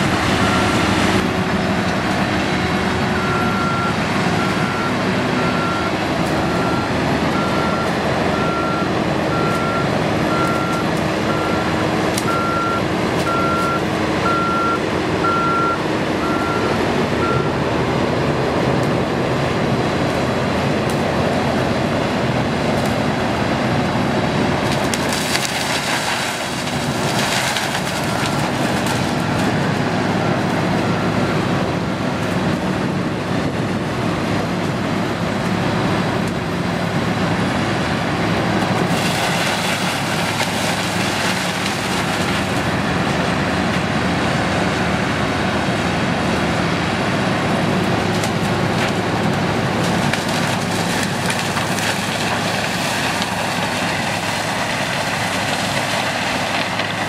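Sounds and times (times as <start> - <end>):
harvester engine and machinery: 0.0 - 57.0
reversing alarm beeping: 3.1 - 17.6.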